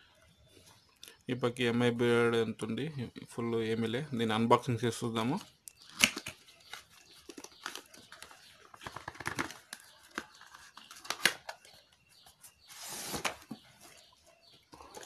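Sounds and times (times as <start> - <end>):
cardboard packaging handled: 6.0 - 11.7, 12.4 - 14.0.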